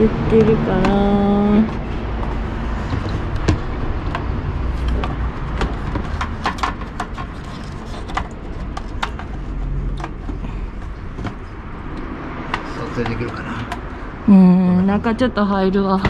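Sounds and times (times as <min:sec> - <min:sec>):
hand tools clicking and tapping: 0:00.4 - 0:13.9
steady low rumble: 0:12.8 - 0:16.0.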